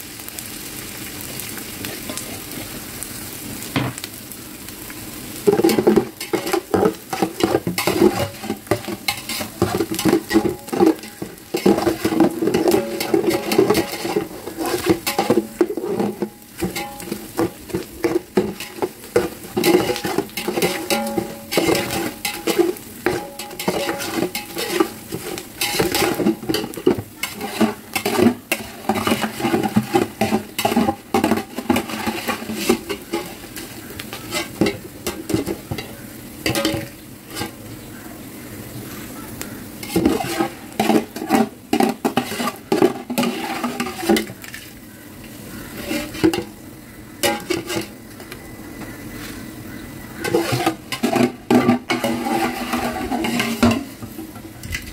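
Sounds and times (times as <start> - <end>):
frying in hot oil sizzling: 0.0 - 54.9
metal skimmer scraping a steel pot: 5.5 - 37.6, 39.8 - 44.7, 45.7 - 46.6, 47.2 - 48.0, 50.2 - 54.4.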